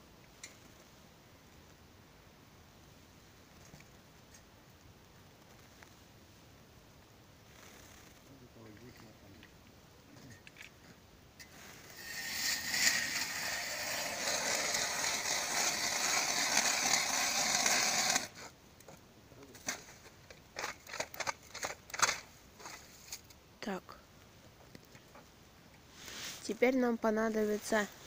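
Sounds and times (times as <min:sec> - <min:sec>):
ice auger grinding: 0:11.8 - 0:18.4.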